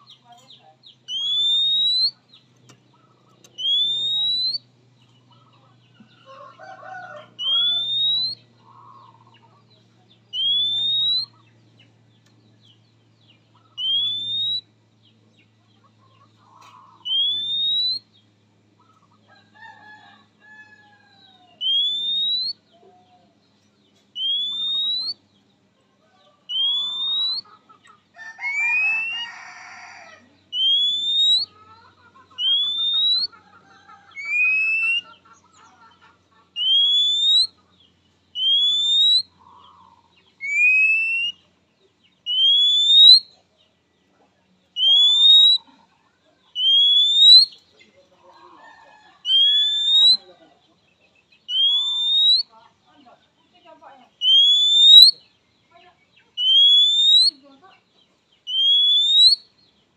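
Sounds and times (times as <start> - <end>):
bird rising whistle call: 3.6 - 4.6, 7.4 - 8.4, 10.4 - 11.3, 17.1 - 18.0, 30.5 - 31.5, 36.6 - 37.5, 38.4 - 39.3, 40.4 - 41.4, 42.3 - 43.3, 46.6 - 47.6, 49.3 - 50.2, 51.5 - 52.5, 54.2 - 55.2, 56.4 - 57.3, 58.5 - 59.4.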